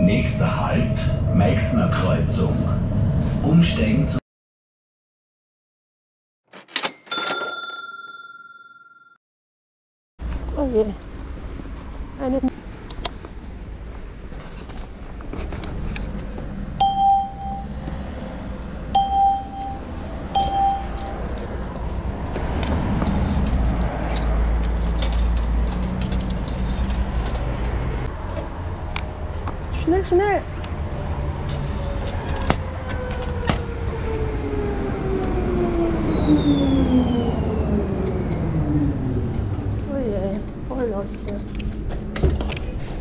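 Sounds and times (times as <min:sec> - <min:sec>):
tram braking: 0:00.0 - 0:04.2, 0:16.7 - 0:29.3, 0:30.6 - 0:42.2
touchscreen beeps: 0:16.8 - 0:17.7, 0:19.0 - 0:19.8, 0:20.4 - 0:21.0
traction motor whine: 0:32.1 - 0:40.7.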